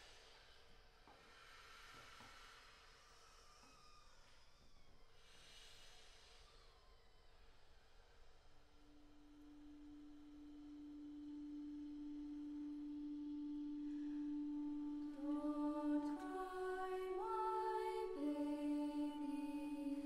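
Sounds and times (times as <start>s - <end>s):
woodwind quintet playing: 10.4s - 20.0s.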